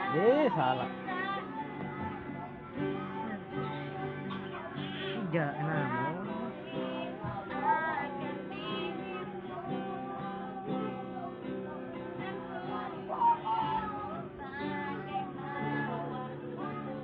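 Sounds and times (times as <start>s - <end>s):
strummed acoustic guitar: 0.0s - 17.0s
woman singing: 0.0s - 17.0s.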